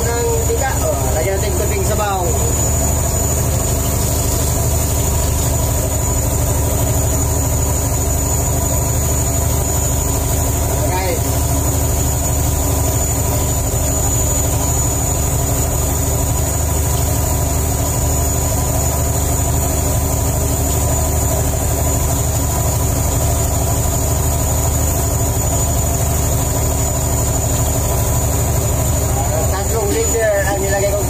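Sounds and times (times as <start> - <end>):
boat engine droning: 0.0 - 31.0.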